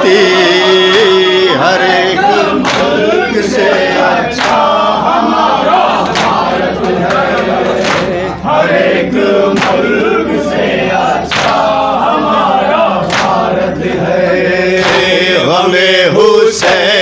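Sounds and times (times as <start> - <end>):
men chanting into microphone: 0.0 - 17.0
hands slapping chests: 2.6 - 3.0, 13.1 - 13.4.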